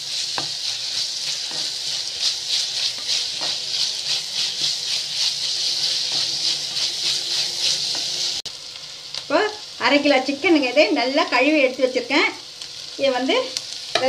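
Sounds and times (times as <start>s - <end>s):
onions sizzling in hot oil: 0.0s - 14.0s
wooden spatula scraping pot: 0.1s - 8.4s.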